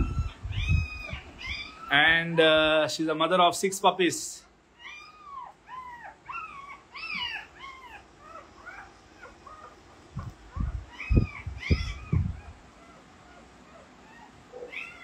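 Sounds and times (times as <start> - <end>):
newborn puppies squealing: 0.0 - 2.3, 4.7 - 15.0
dull low thumps: 10.1 - 12.6.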